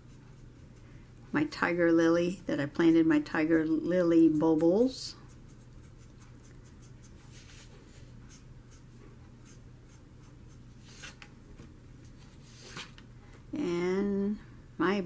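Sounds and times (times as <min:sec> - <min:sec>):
marker stroking on paper: 0:04.2 - 0:11.2
paper sliding on table: 0:12.3 - 0:13.0.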